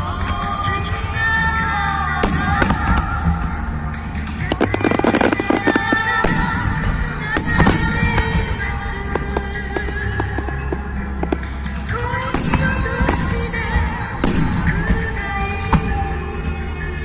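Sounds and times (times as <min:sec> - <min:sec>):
music with sustained notes: 0:00.0 - 0:17.0
firework crackling: 0:02.2 - 0:16.2
firework shells bang: 0:12.4 - 0:15.2.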